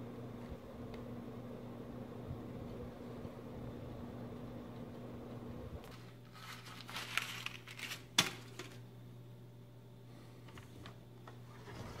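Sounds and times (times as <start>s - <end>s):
steady low hum: 0.0s - 12.0s
rustling and crinkling handling: 5.8s - 8.8s.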